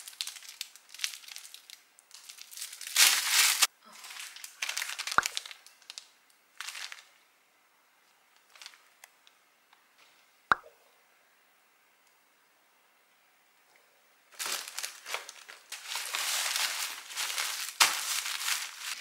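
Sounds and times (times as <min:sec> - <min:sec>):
plastic bags crinkling: 0:00.0 - 0:07.2, 0:08.4 - 0:08.9, 0:14.3 - 0:19.0.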